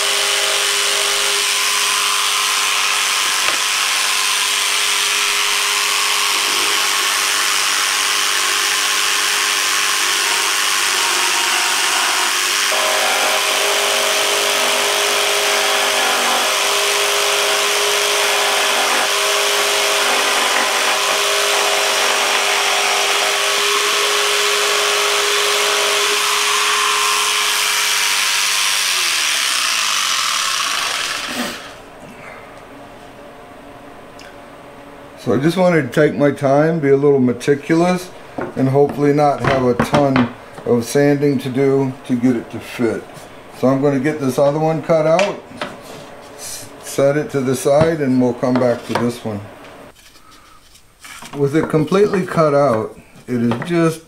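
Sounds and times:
jigsaw cutting plywood: 0:00.0 - 0:31.8.

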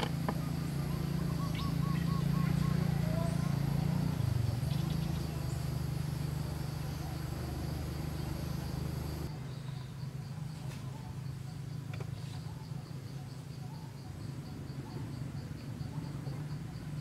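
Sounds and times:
motor droning: 0:00.0 - 0:09.3.

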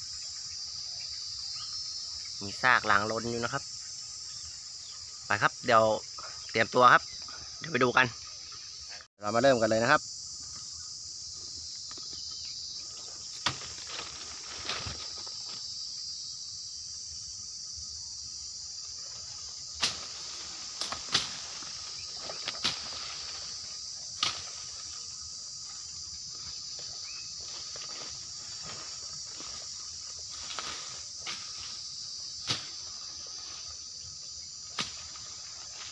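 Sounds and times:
insect chorus chirring: 0:00.0 - 0:35.9
footsteps and twigs snapping: 0:13.2 - 0:15.7, 0:19.8 - 0:25.0, 0:25.6 - 0:31.8, 0:32.4 - 0:33.7, 0:34.7 - 0:35.9.

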